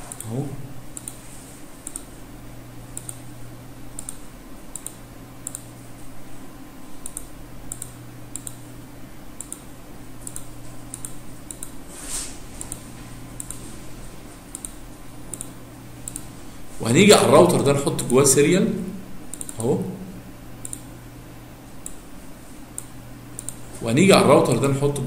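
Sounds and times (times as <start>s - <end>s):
low electrical hum: 0.0s - 25.0s
computer mouse clicking: 0.1s - 0.3s, 0.9s - 1.2s, 1.8s - 2.2s, 2.9s - 3.3s, 3.9s - 5.8s, 7.0s - 8.7s, 9.4s - 11.8s, 12.6s - 13.7s, 14.4s - 16.3s, 19.3s - 19.6s, 20.6s - 20.9s, 21.8s - 22.1s, 22.7s - 23.7s.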